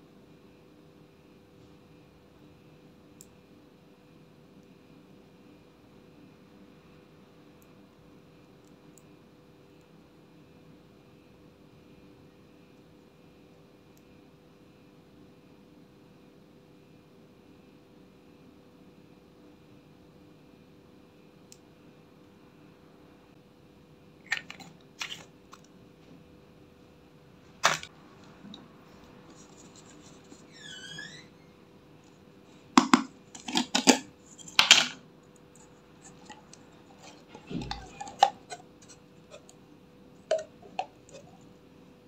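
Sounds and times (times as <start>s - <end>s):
plastic containers clicking and clattering: 24.2s - 25.7s, 27.6s - 27.9s, 32.7s - 35.0s, 36.0s - 39.6s, 40.3s - 41.4s
jar screw lid turning: 32.8s - 35.0s, 35.6s - 39.6s, 40.3s - 41.5s.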